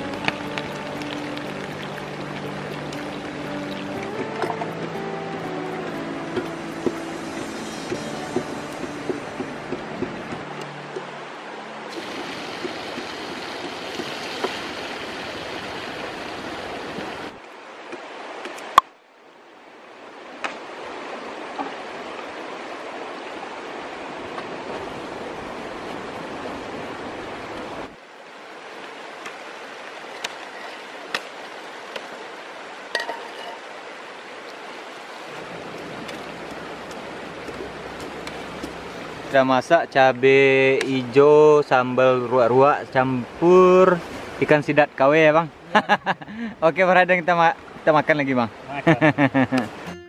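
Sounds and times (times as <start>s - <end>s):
sambal sizzling in oil: 6.4s - 9.4s.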